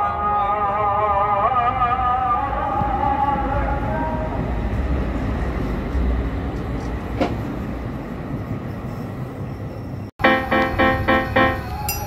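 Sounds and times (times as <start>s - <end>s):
tram wheels rumbling on rails: 1.8s - 12.0s
sharp clack of tram wheels: 6.5s - 7.6s.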